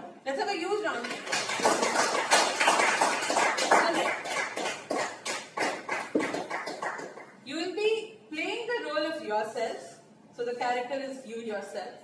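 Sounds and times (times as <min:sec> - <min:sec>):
audience applauding: 0:01.1 - 0:07.3.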